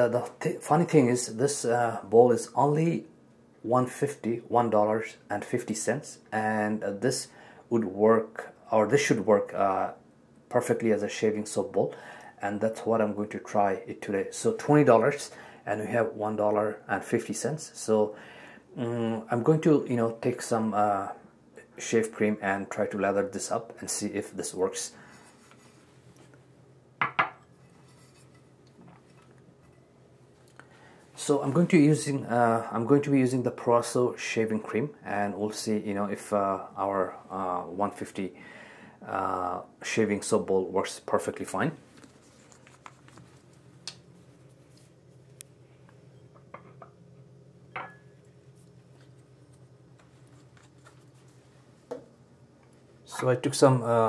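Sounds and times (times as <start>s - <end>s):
low steady hum: 0.0s - 54.0s
bowl knocking on sink: 27.0s - 27.4s
bowl clinking on ceramic sink: 47.8s - 48.2s.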